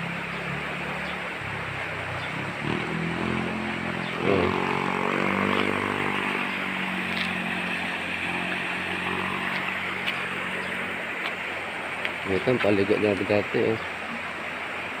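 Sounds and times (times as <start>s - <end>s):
river rushing: 0.0s - 15.0s
vehicle engine running: 0.0s - 15.0s.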